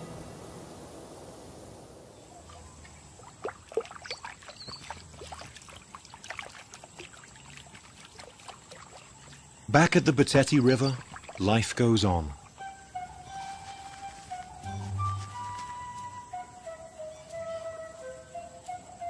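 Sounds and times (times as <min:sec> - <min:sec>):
thin steady high whine: 0:00.0 - 0:02.9
background music: 0:12.6 - 0:19.0.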